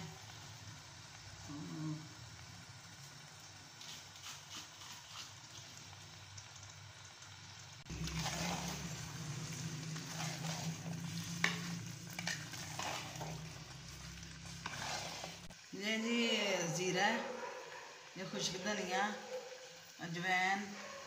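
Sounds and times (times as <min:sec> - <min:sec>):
food sizzling: 0:00.0 - 0:21.0
spoon scraping pot: 0:07.9 - 0:15.6.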